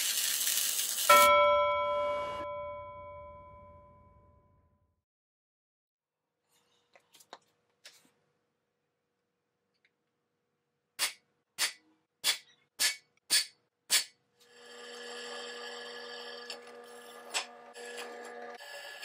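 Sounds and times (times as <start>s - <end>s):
drill press drilling steel: 14.4s - 19.0s.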